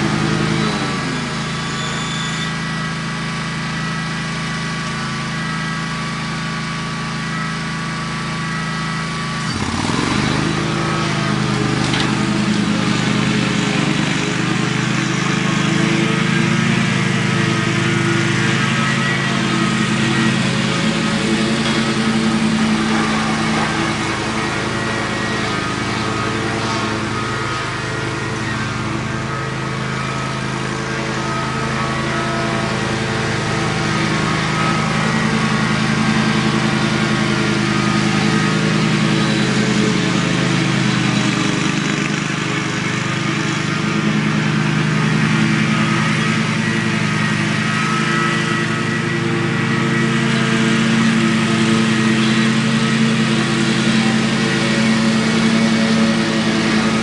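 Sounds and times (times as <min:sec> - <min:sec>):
riding lawn mower engine cutting grass: 0:00.0 - 0:57.0.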